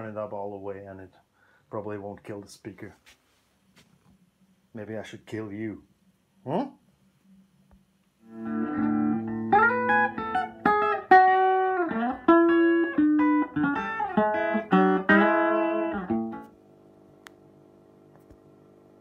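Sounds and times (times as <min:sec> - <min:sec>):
faint amplifier hum: 0:00.0 - 0:19.0
electric guitar picked notes: 0:08.2 - 0:18.3.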